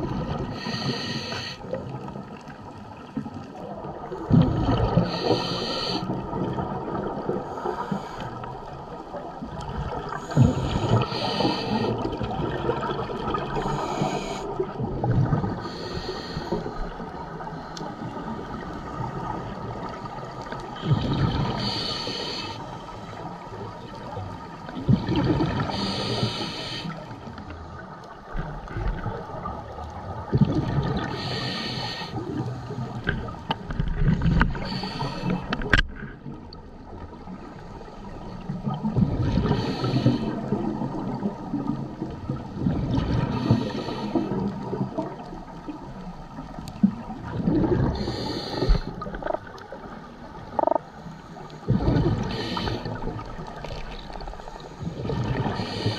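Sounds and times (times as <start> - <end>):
diver exhaling bubbles underwater: 4.2 - 7.4, 24.8 - 26.5, 46.9 - 49.6, 51.7 - 54.2
regulator gurgling and inhalation: 24.8 - 27.0, 34.0 - 35.8, 47.3 - 49.5, 50.5 - 55.9.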